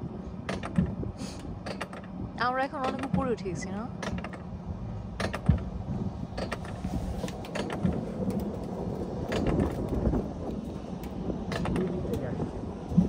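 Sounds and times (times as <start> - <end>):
coaster sled rumbling on rails: 0.0 - 13.0
clicks and rattles: 2.8 - 3.3, 5.2 - 5.7, 6.3 - 13.0.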